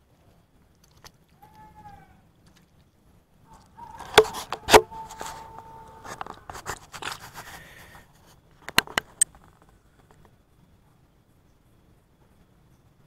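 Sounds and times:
camera handling scraping: 3.9s - 7.6s
faint steady tone: 9.2s - 13.0s.

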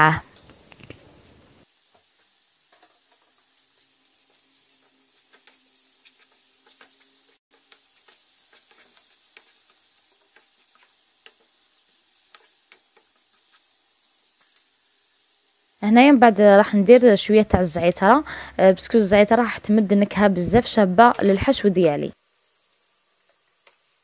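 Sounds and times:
onion sizzling in oil: 0.0s - 24.0s
utensil clicking against pan: 7.6s - 11.6s, 12.2s - 13.7s.

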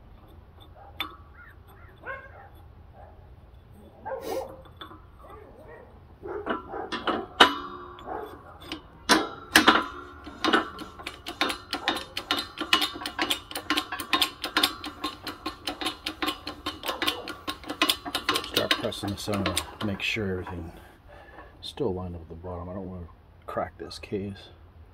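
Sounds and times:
metallic ringing knocks: 4.6s - 20.8s.

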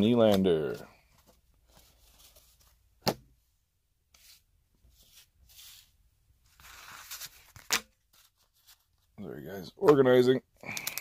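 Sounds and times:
trading cards rustling: 0.1s - 2.8s, 10.6s - 11.0s.

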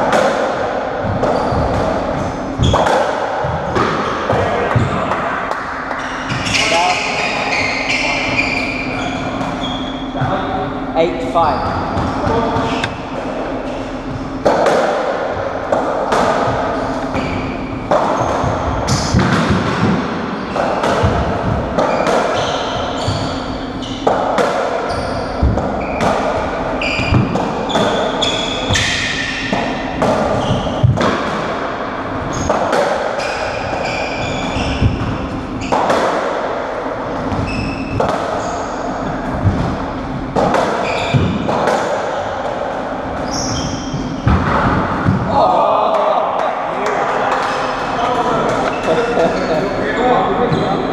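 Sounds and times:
racket hitting rubber ball: 0.0s - 7.1s, 11.9s - 45.3s.

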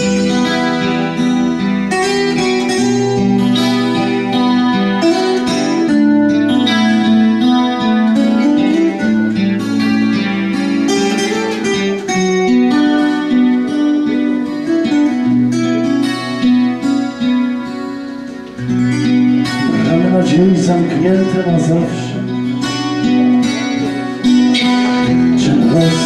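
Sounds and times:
picked guitar notes: 0.0s - 26.0s
held bass notes: 18.7s - 26.0s.

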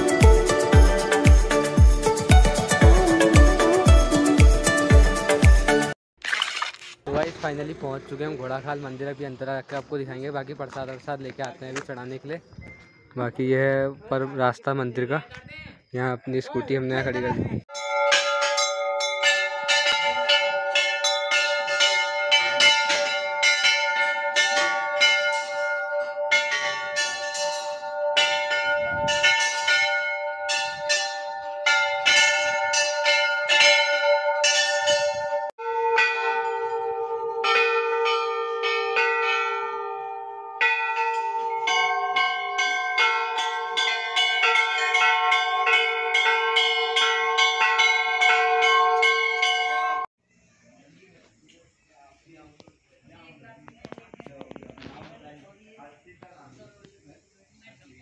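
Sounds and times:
metal temple bells clanging: 17.7s - 50.1s.

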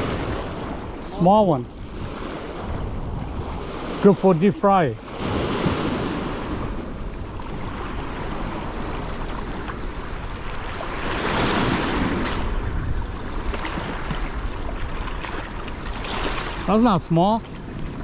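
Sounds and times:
wind buffeting microphone: 0.0s - 18.0s
waves splashing on rocks: 7.4s - 17.7s.

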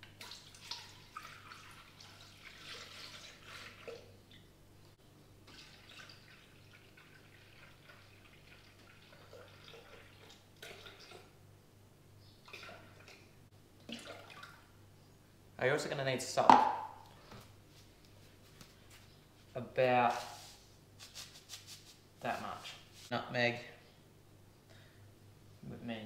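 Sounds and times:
low steady hum: 0.0s - 26.0s
milk pouring into metal bowl: 0.2s - 4.1s, 5.5s - 11.4s.

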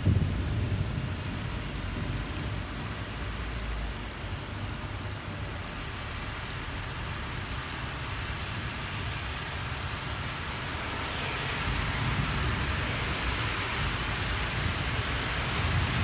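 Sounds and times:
thunder rumbling: 0.0s - 2.9s
rain hissing: 0.0s - 16.0s.

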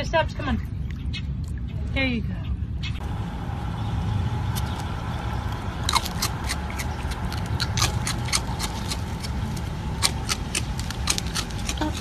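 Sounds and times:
steady low rumble: 0.0s - 12.0s
dry cereal clicking and crackling: 5.9s - 12.0s.

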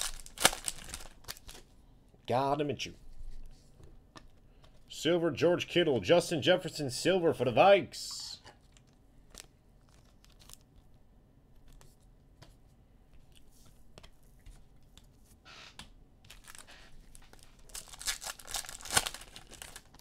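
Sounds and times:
foil wrapper tearing and crinkling: 0.0s - 1.6s, 8.8s - 10.7s, 16.3s - 20.0s.

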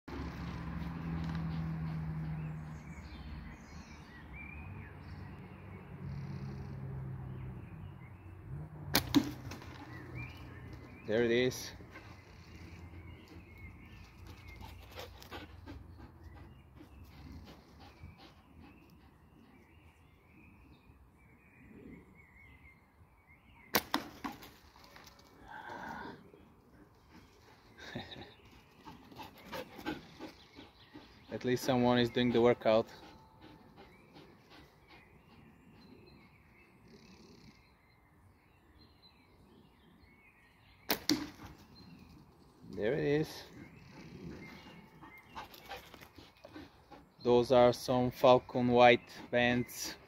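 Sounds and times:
faint birdsong: 0.1s - 50.0s
faint bird chirps: 32.9s - 42.2s.

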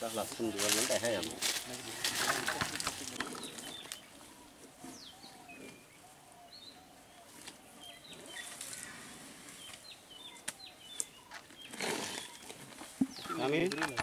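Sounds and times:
high bird chirps: 3.4s - 13.5s.

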